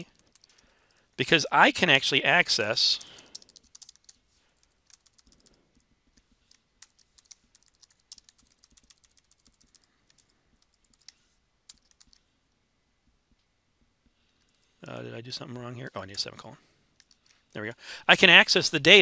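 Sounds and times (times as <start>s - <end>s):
keyboard typing: 0.0s - 1.1s, 2.8s - 12.3s, 17.0s - 17.4s.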